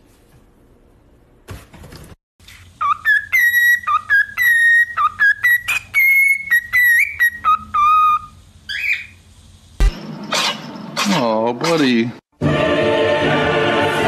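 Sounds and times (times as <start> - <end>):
bird whistling a tune: 2.8 - 9.2.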